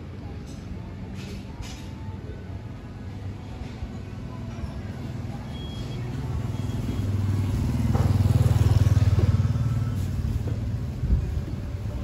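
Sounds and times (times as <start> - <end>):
motorcycle passing: 6.0 - 12.0.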